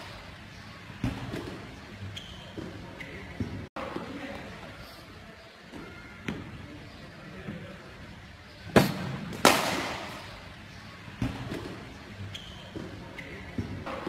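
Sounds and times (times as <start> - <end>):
cricket bat striking balls: 8.8 - 10.2.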